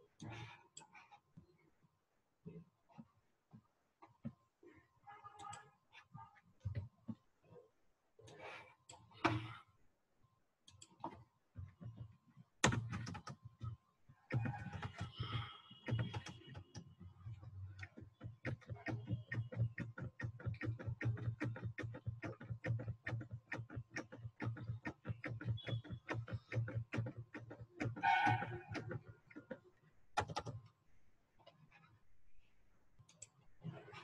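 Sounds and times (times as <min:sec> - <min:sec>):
computer keyboard typing: 0:12.6 - 0:29.6, 0:30.2 - 0:30.7.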